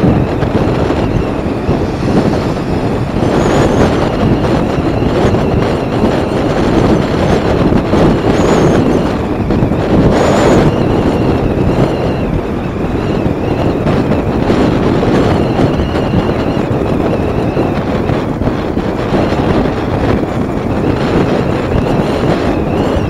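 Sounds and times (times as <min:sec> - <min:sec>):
faint whine: 0:00.0 - 0:07.4
wind buffeting microphone: 0:00.0 - 0:23.0.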